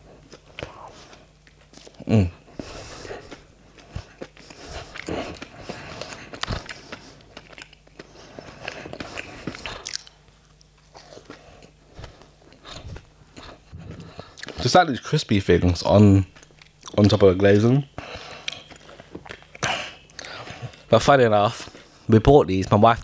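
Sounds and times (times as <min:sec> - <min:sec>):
chewing with crunches: 0:00.0 - 0:14.8, 0:15.8 - 0:22.8
person humming mm: 0:02.0 - 0:03.4, 0:13.7 - 0:14.2.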